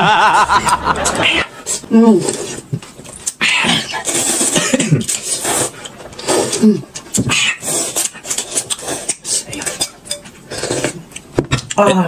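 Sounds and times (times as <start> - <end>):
chewing: 2.3 - 9.8
person slurping noodles: 3.6 - 9.5.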